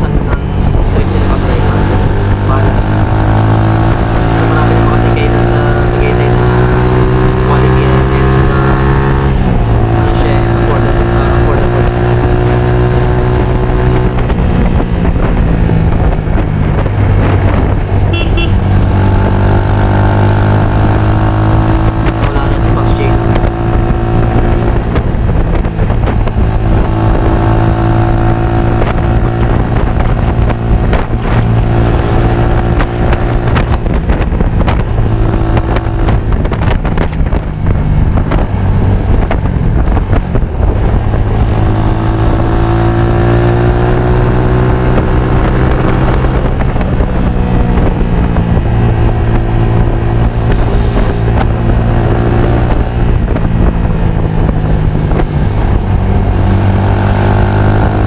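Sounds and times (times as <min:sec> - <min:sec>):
motorcycle engine revving: 0:00.0 - 0:58.0
wind on microphone: 0:00.0 - 0:58.0.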